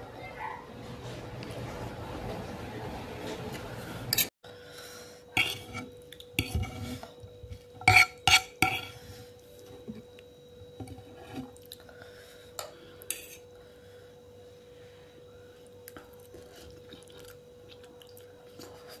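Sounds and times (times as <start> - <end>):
fork scraping a plate: 5.4 - 7.2, 7.8 - 9.0, 13.1 - 13.5.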